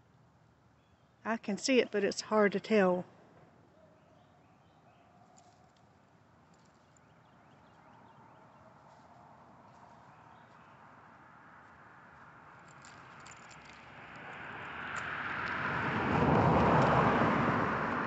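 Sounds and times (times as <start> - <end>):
car driving past: 13.6 - 18.0.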